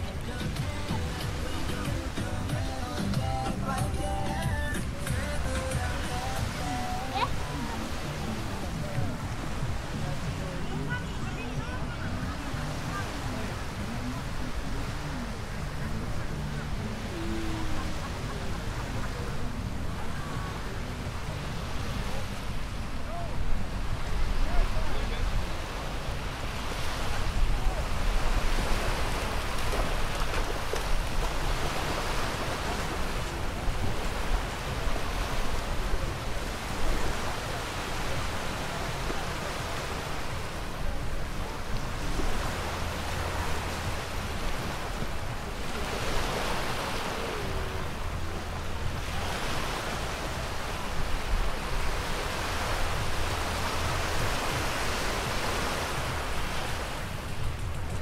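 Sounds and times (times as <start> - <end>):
small surf washing onto sand: 21.6 - 40.7.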